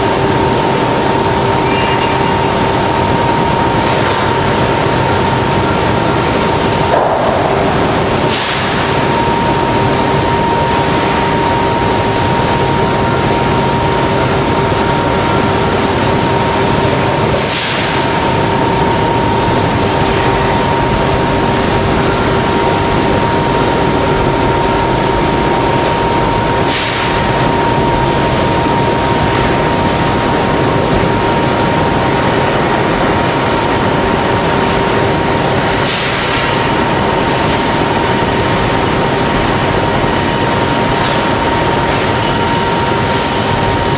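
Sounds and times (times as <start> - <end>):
foundry machinery drone: 0.0 - 43.9
high whine: 0.0 - 43.9.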